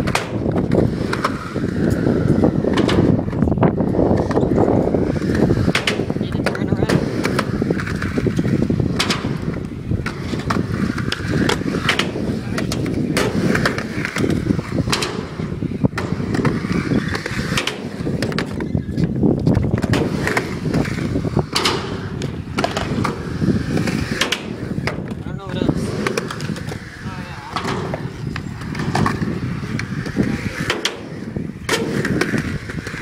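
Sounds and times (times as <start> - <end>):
skateboard wheels rumbling: 0.0 - 33.0
skateboard clacks and knocks: 2.6 - 25.2.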